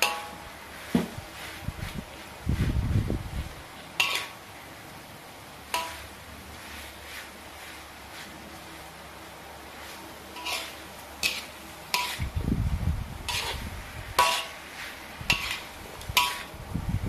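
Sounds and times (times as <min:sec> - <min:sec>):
spoon clinking against wok: 0:00.0 - 0:00.5, 0:04.0 - 0:04.4, 0:05.7 - 0:06.1, 0:10.4 - 0:12.4, 0:13.3 - 0:13.6, 0:14.2 - 0:14.6, 0:15.3 - 0:16.5
spoon scraping in a wok: 0:03.4 - 0:04.4, 0:05.7 - 0:08.9, 0:09.6 - 0:12.4, 0:13.2 - 0:16.6.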